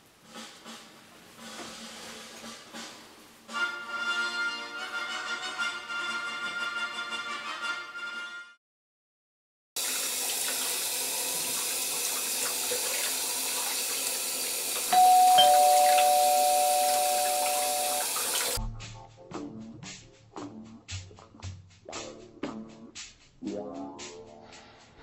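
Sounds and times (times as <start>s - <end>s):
two-note doorbell chime: 14.9s - 18.6s
music with a beat: 18.6s - 25.0s.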